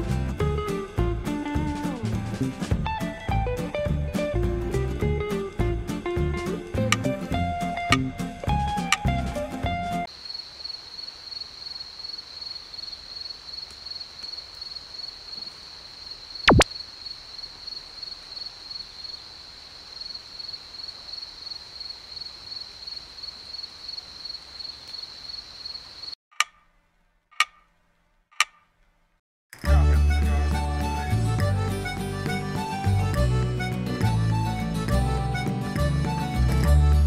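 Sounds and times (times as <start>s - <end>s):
clock ticking clicks: 26.4s - 26.7s, 27.3s - 27.7s, 28.4s - 28.7s.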